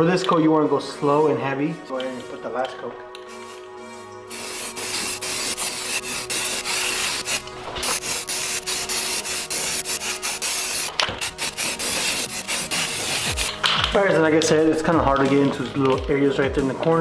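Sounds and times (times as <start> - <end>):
aerosol spray can hissing: 3.3 - 13.7.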